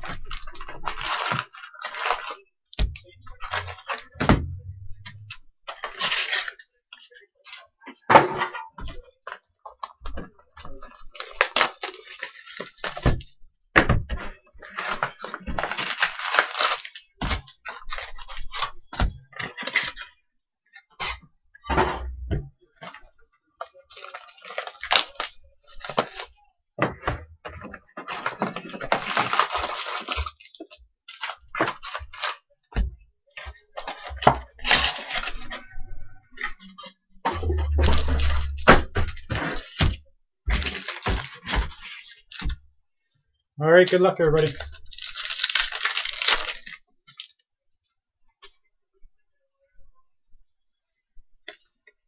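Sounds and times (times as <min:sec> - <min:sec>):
wrappers crinkling and tearing: 0:00.0 - 0:02.5, 0:05.7 - 0:07.7, 0:10.8 - 0:13.0, 0:14.7 - 0:20.1, 0:23.8 - 0:26.4, 0:28.2 - 0:32.5, 0:33.5 - 0:35.6, 0:40.5 - 0:42.5, 0:44.4 - 0:47.4.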